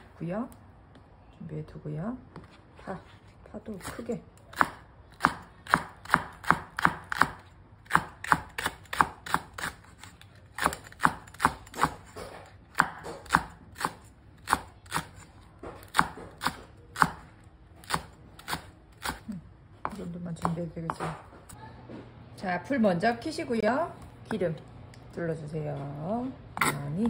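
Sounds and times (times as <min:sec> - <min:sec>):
knife chopping on wooden board: 0:03.8 - 0:10.0, 0:10.6 - 0:19.2.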